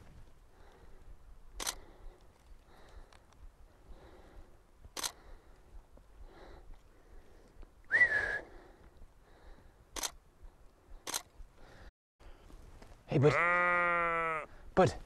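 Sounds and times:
camera shutter clicks: 1.6s - 1.9s, 5.0s - 5.2s, 9.9s - 10.2s, 11.0s - 11.3s
short rising whistle: 7.9s - 8.5s.

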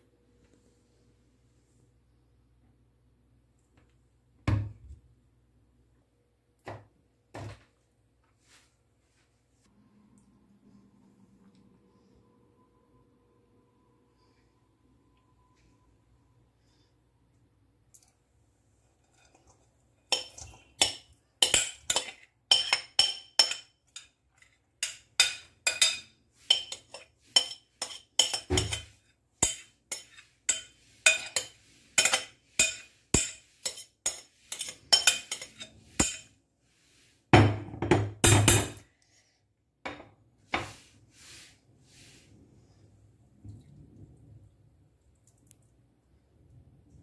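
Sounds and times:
spoon clinking in metal bowl: 19.0s - 24.2s, 24.8s - 36.3s.

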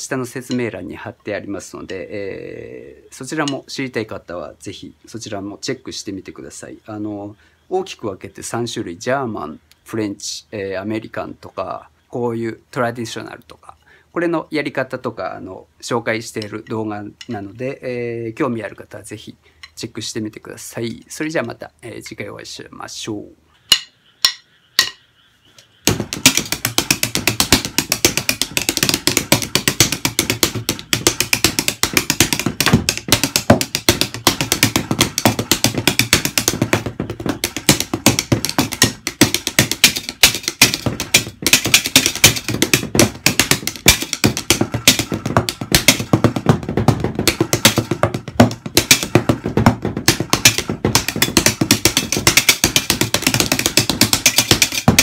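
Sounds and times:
drumsticks hitting practice pads: 23.7s - 25.0s, 25.8s - 55.0s.

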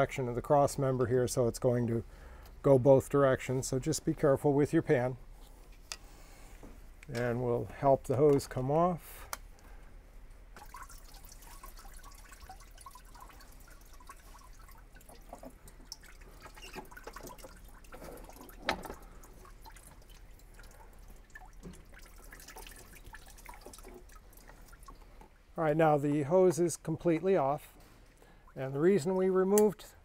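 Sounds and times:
coolant dripping into pan: 10.6s - 25.6s.

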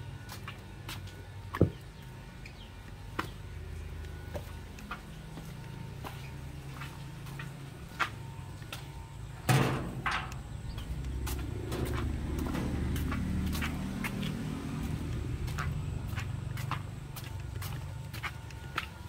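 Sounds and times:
footsteps on concrete: 0.2s - 19.0s
low steady rumble: 7.8s - 19.0s.

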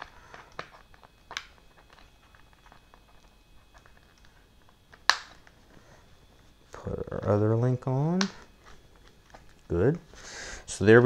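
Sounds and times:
handling noises and small clicks: 0.0s - 6.6s, 8.1s - 9.8s.

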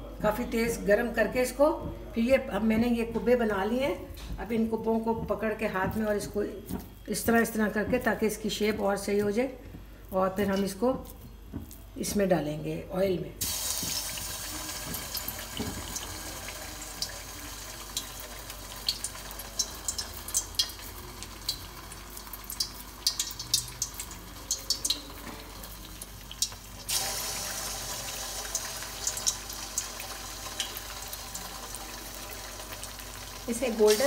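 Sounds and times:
food sizzling in hot oil: 13.4s - 34.0s.

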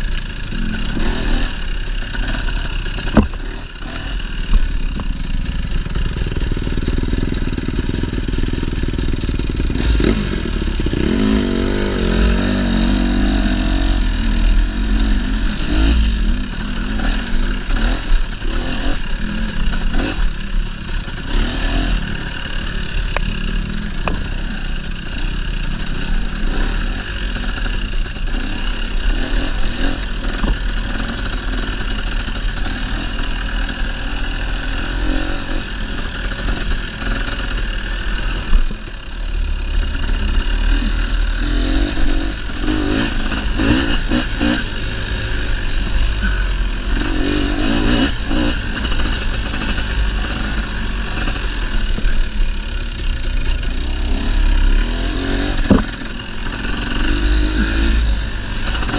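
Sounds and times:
dirt bike engine revving: 0.0s - 58.9s
bike knocks and rattles: 2.2s - 10.1s, 23.1s - 25.2s, 55.4s - 56.2s.

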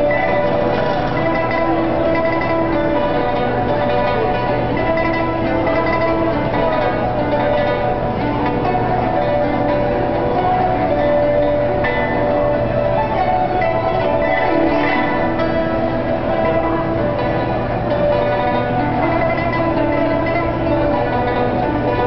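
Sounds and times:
hammered dulcimer: 0.0s - 22.0s
plucked zither: 0.0s - 22.0s.

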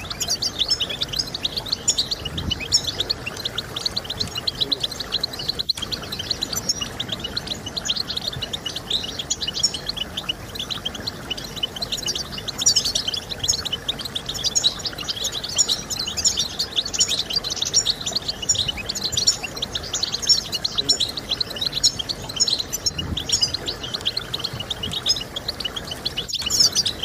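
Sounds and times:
goldfinch twittering: 0.0s - 27.0s.

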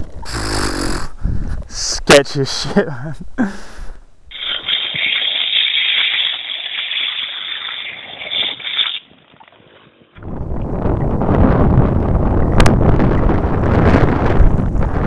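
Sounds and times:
wind buffeting microphone: 0.0s - 1.8s, 9.7s - 15.0s
skateboard wheels hissing on wet tarmac: 4.3s - 9.0s.

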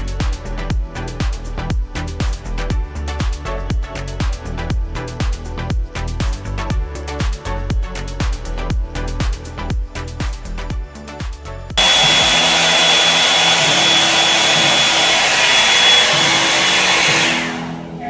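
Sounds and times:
electronic dance music: 11.2s - 18.0s
hair dryer brush blowing: 11.8s - 18.0s.

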